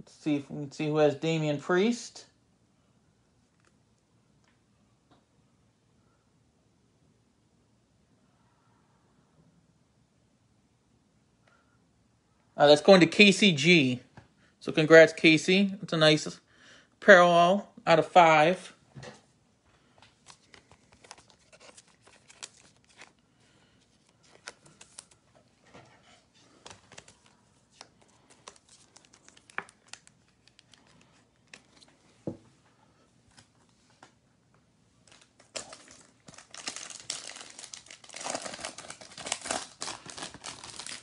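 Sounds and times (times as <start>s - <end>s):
foil wrapper crinkling: 20.2s - 23.2s, 26.6s - 31.9s, 35.1s - 41.0s.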